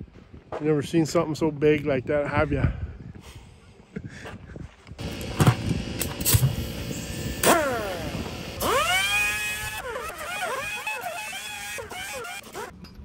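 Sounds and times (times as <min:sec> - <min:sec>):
air tool hissing: 0:05.0 - 0:12.7
air tool whine spinning up: 0:05.0 - 0:12.7.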